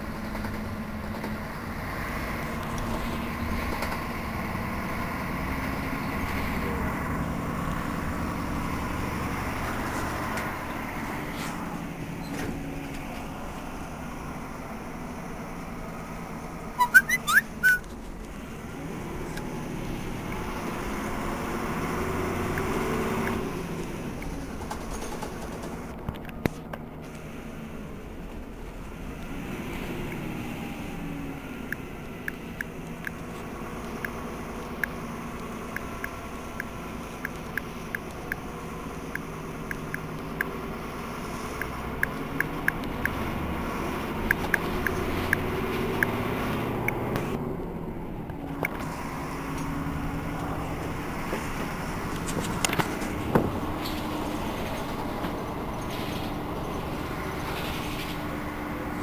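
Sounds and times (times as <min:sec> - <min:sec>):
bus diesel engine running: 0:00.0 - 0:59.0
short high squeaks: 0:16.8 - 0:17.9.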